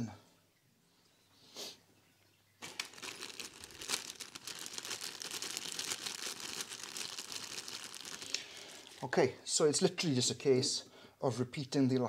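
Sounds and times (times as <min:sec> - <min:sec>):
plastic bag crinkling: 0:02.6 - 0:09.2.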